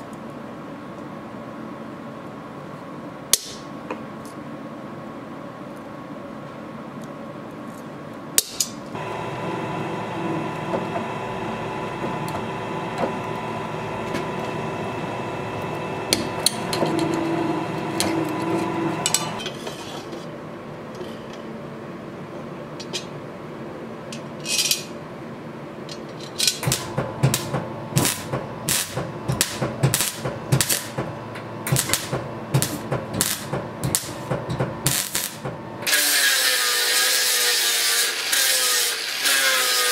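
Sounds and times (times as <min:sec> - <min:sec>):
machine hum: 0:08.9 - 0:19.5, 0:25.2 - 0:36.2.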